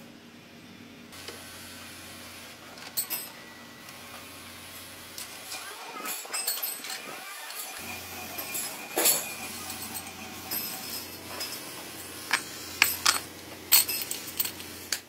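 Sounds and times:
metal rods clinking: 5.5 - 15.0.

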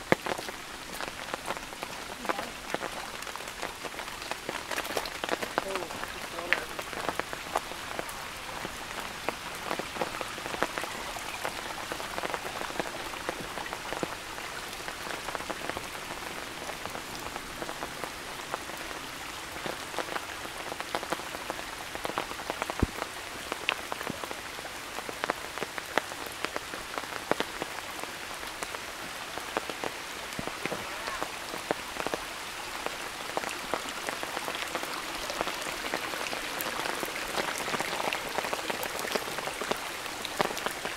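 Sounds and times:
raindrops tapping close by: 0.0 - 40.9
steady rain falling: 0.0 - 40.9.

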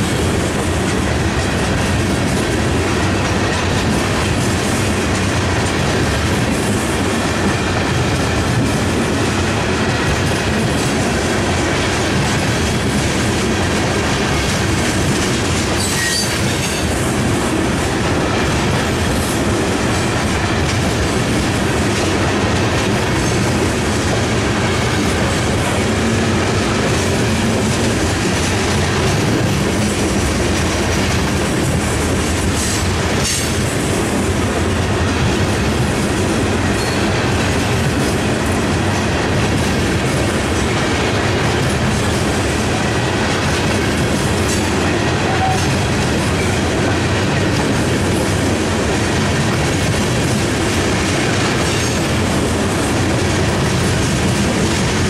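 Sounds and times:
freight train rumbling past: 0.0 - 55.0
high wheel squeal: 15.8 - 16.4.

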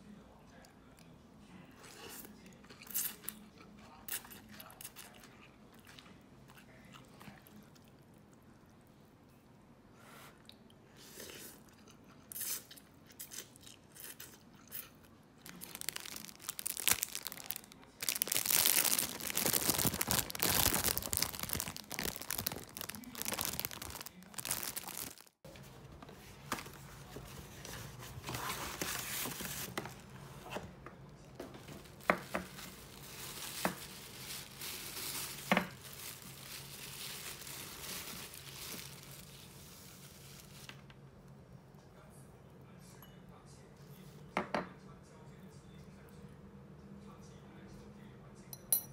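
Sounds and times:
packaging being torn and crumpled: 15.4 - 25.4, 32.5 - 39.6.

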